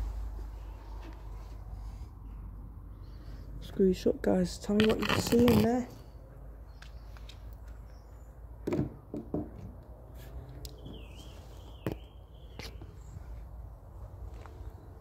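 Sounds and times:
low steady rumble: 0.0 - 4.8
bird chirping: 6.0 - 8.4, 10.7 - 13.4.

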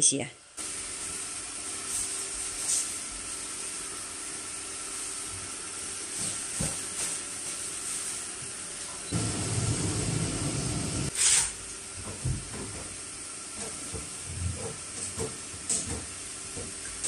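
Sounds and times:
low rumbling noise: 9.2 - 11.1.

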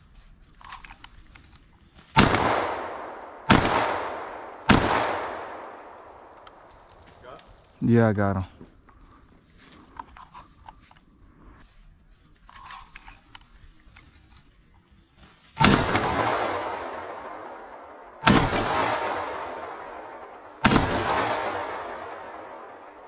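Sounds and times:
echo through woods: 0.0 - 12.0, 13.1 - 23.0
shotgun blasts: 2.1 - 6.7, 15.6 - 23.0.

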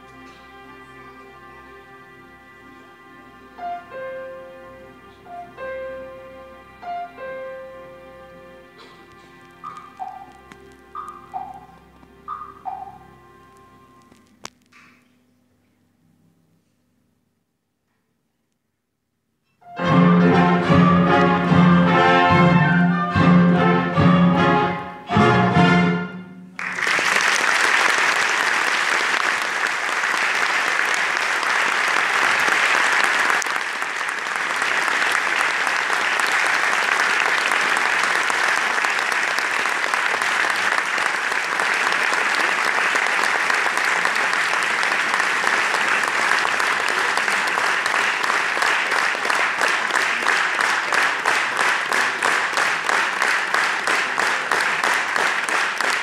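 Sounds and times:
piano and orchestra chord: 3.0 - 14.0, 19.6 - 26.8
rhythmic clapping in unison: 9.6 - 13.0, 26.6 - 56.0
audience applause: 26.6 - 56.0.

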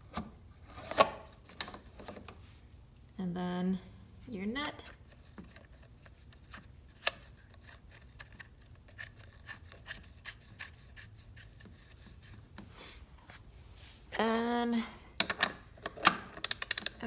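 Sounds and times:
nut threading clicks and scrapes: 4.7 - 12.6, 15.2 - 17.0.

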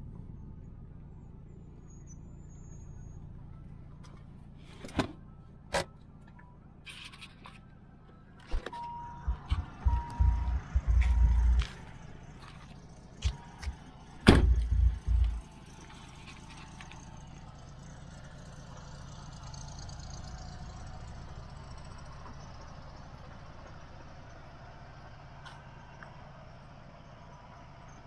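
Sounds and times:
short low rumble: 8.7 - 15.5
car door slamming: 14.2 - 15.4.

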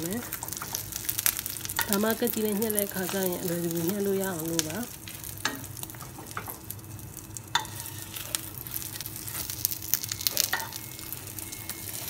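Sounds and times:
omelette sizzling in a pan: 0.0 - 12.0
metal spoon scraping a pan: 7.6 - 8.4, 10.2 - 12.0.

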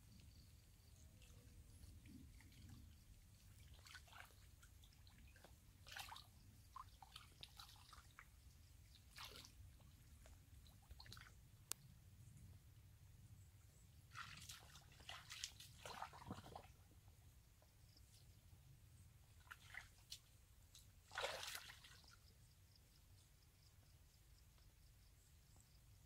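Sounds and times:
hands squelching in muddy water: 3.4 - 8.3, 8.9 - 9.8, 14.1 - 16.8, 19.4 - 22.2.

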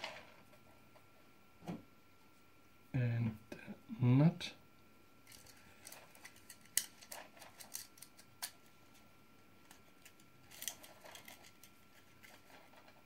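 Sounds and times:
plastic parts clicking: 5.3 - 8.6.

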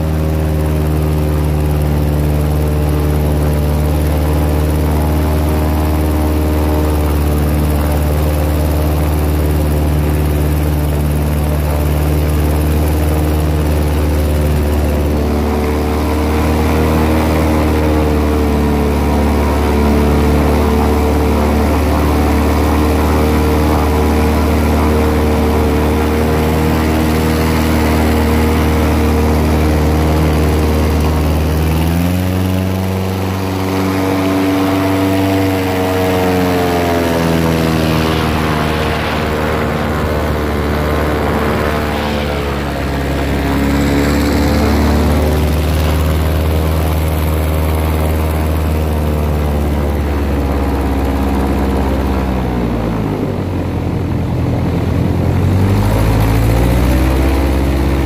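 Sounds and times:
airboat engine and propeller: 0.0 - 58.0
rushing noise: 31.6 - 45.8.

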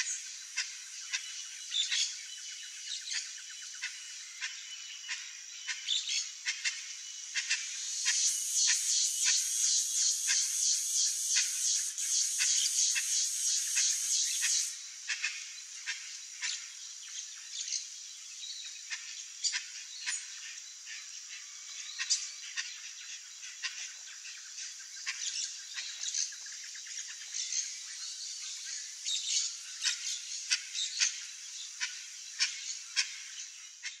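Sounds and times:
birds chirping and squawking: 3.1 - 16.7
steady high hiss: 6.2 - 18.5.

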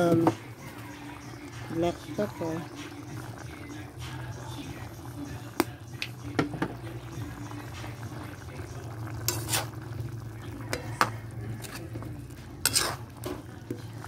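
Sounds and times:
utensil scraping metal pan: 9.3 - 9.7, 12.6 - 13.1.

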